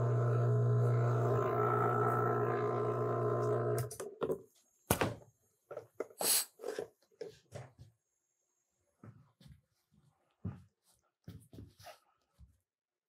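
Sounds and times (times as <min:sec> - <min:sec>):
vacuum pump droning: 0:00.0 - 0:03.9.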